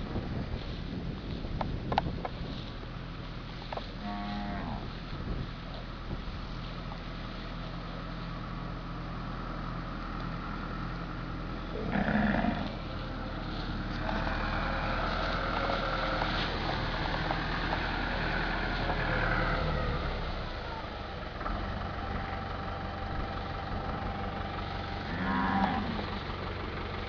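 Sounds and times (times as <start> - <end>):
tractor engine running: 0.0 - 27.0
cow mooing: 4.0 - 4.9, 11.7 - 12.8, 25.0 - 26.2.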